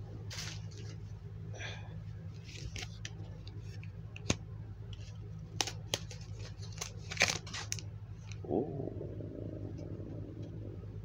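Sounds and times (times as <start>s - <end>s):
steady low hum: 0.0s - 11.0s
foil wrapper crinkling: 5.0s - 8.4s.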